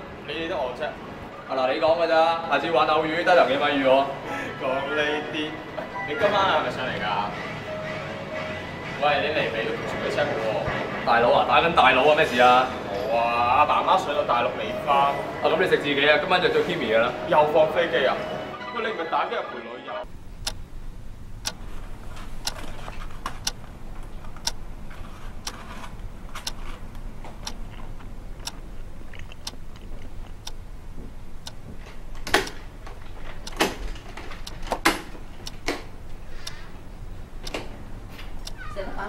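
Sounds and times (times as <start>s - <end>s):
low steady hum: 20.1s - 39.0s
alarm clock ticking: 20.2s - 20.7s, 21.4s - 21.6s, 22.4s - 22.6s, 24.4s - 24.6s, 30.4s - 30.7s, 31.4s - 31.6s, 33.4s - 37.6s, 38.4s - 38.6s
loud clicks: 32.2s - 32.7s, 37.4s - 38.6s.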